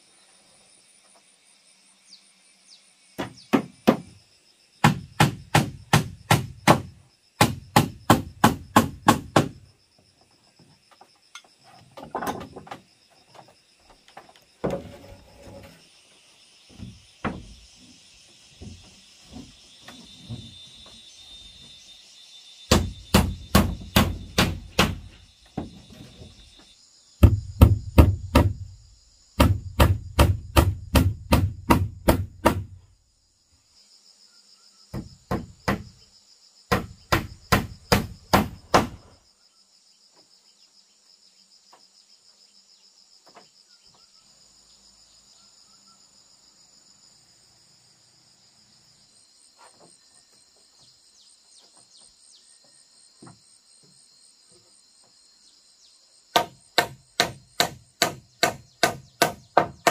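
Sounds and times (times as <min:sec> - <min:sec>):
insects buzzing: 0:00.0 - 0:59.9
hammer striking nails into wood: 0:03.2 - 0:04.2, 0:04.8 - 0:09.6, 0:22.7 - 0:25.2, 0:27.2 - 0:28.6, 0:29.4 - 0:32.8, 0:35.0 - 0:35.9, 0:36.7 - 0:39.0, 0:56.3 - 0:59.9.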